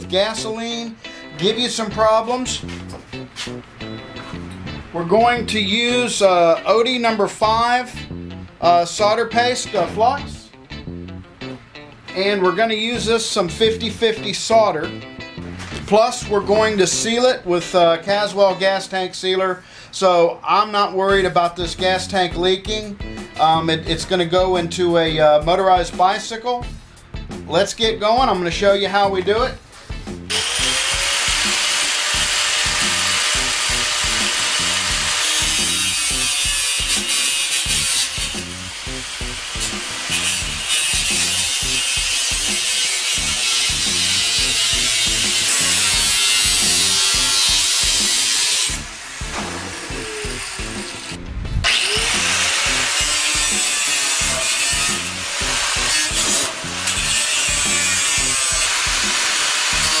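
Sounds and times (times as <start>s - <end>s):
angle grinder cutting sheet metal: 30.3s - 60.0s.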